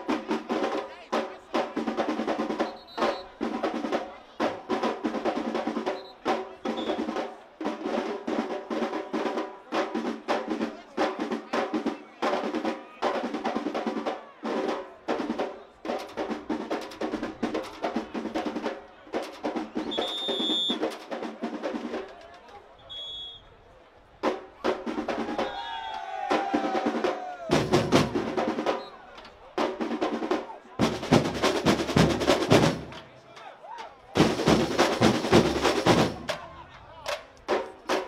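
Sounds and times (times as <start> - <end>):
samba drums playing: 0.0 - 22.1, 24.2 - 33.1, 34.2 - 38.0
high whistle blasts: 2.6 - 3.4, 6.8 - 7.0, 19.8 - 20.8, 22.8 - 23.6, 25.4 - 26.2.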